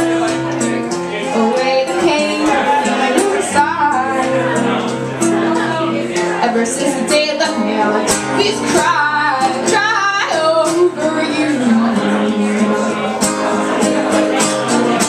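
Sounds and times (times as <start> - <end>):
strummed acoustic guitar: 0.0 - 15.0
woman singing: 1.2 - 13.2.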